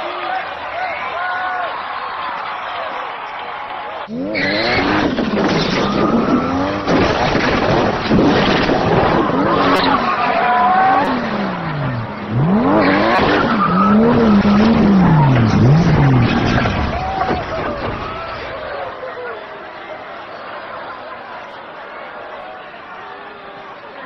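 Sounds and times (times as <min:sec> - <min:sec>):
sports car engine revving: 0:04.1 - 0:17.0
tyres squealing: 0:04.1 - 0:19.1.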